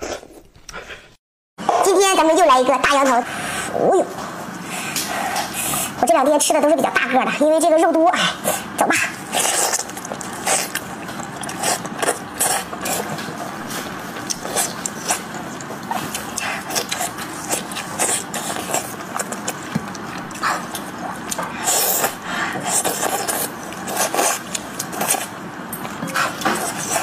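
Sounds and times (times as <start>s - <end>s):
close-miked chewing and smacking: 9.1s - 27.0s.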